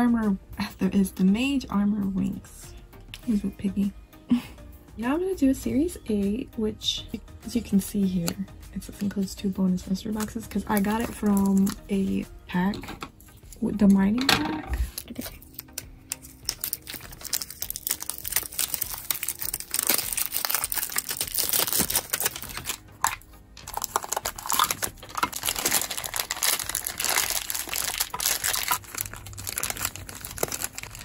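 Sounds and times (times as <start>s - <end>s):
plastic bag being opened: 14.9s - 31.0s
plastic wrapping crinkling and tearing: 14.9s - 31.0s.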